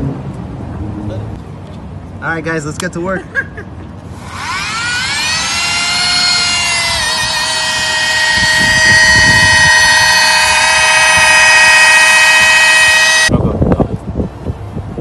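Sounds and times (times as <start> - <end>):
low rumbling wind noise: 4.1 - 15.0
polisher motor whine: 4.2 - 13.3.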